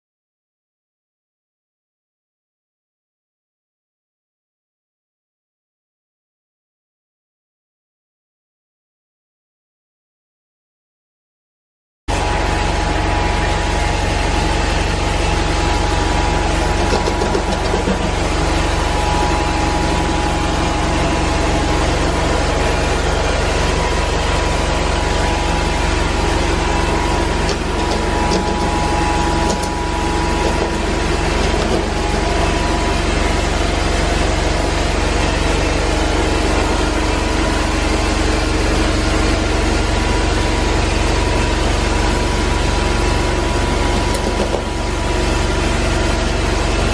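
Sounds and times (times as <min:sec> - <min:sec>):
extraction vacuum drone: 0:12.1 - 0:46.9.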